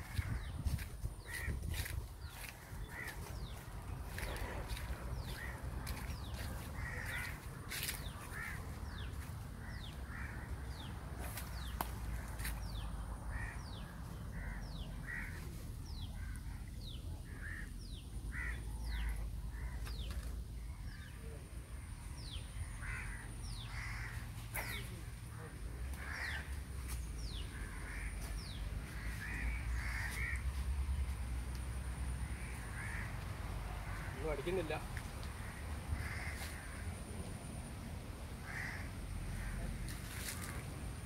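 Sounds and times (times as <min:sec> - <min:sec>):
harsh bird calls: 0:00.0 - 0:30.6.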